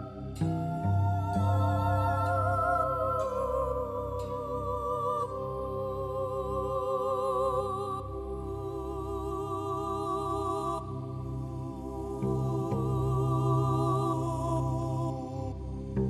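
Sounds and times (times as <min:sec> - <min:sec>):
slow melody with vibrato: 0:00.0 - 0:06.6.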